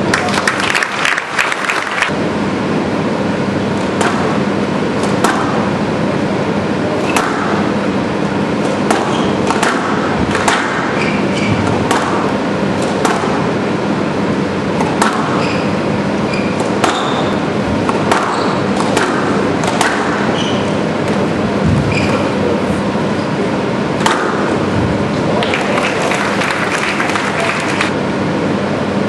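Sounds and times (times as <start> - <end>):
steady background hum: 0.0 - 29.0
squash ball cracking off rackets: 5.0 - 5.7, 8.6 - 13.5, 14.8 - 15.5, 16.6 - 20.4, 24.0 - 24.6
shoes squeaking on wooden floor: 15.3 - 17.3, 18.3 - 18.7, 20.2 - 20.8, 21.6 - 22.4.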